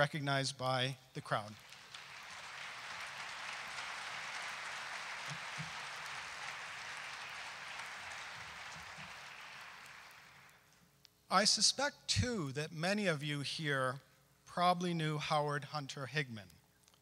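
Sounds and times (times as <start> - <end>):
audience applauding: 1.4 - 10.6.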